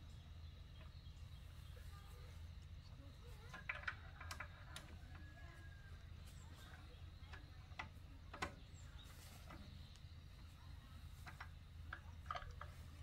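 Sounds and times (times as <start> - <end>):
low steady hum: 0.0 - 13.0
faint clicks and light taps: 6.2 - 13.0.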